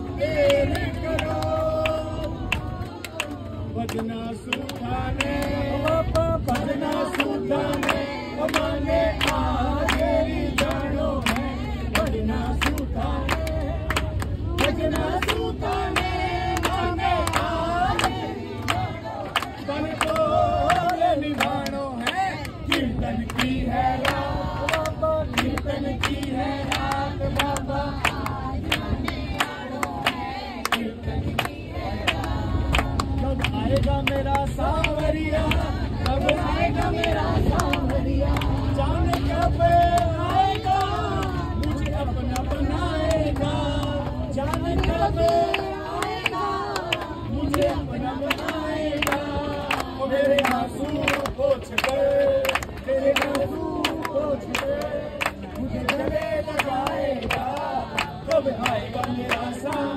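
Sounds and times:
group singing devotional song: 0.0s - 59.9s
hands clapping in time: 0.4s - 59.9s.

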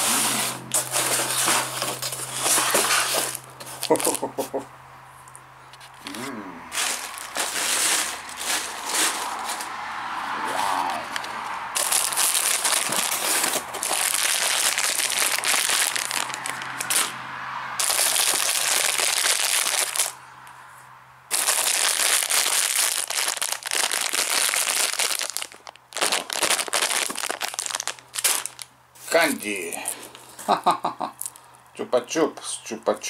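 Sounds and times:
candy wrappers crinkling: 0.8s - 4.4s, 5.9s - 9.7s, 11.8s - 17.1s, 17.8s - 20.2s, 21.3s - 30.3s, 31.2s - 31.5s.

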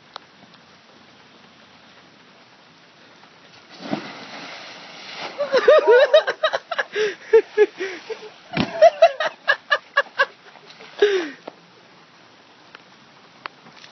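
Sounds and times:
person laughing hard: 5.4s - 10.4s.

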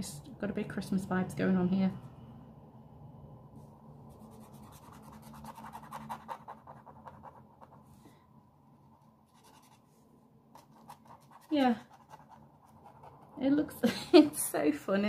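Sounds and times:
marker scratching on paper: 4.1s - 7.8s, 9.3s - 9.9s, 10.5s - 13.4s.

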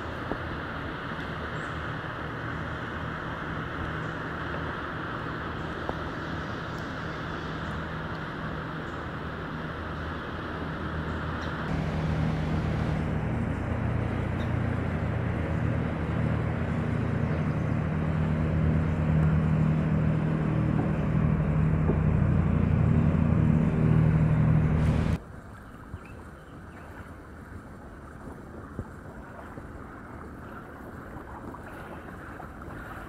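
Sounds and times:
motor engine humming: 1.2s - 25.2s.

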